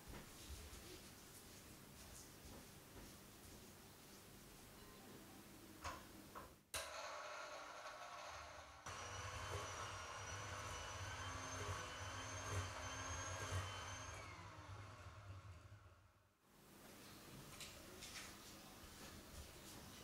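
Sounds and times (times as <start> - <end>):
electric hand mixer whirring: 6.8 - 16.1.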